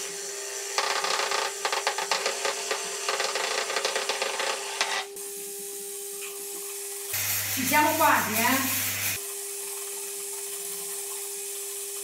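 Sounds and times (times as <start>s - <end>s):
hand blender motor whirring: 7.1s - 12.0s.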